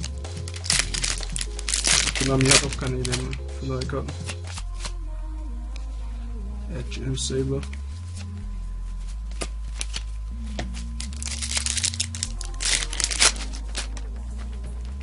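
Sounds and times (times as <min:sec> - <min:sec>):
foil wrapper crinkling: 0:00.0 - 0:05.0, 0:09.3 - 0:14.6
trading cards clicking: 0:00.0 - 0:05.0, 0:09.3 - 0:14.6.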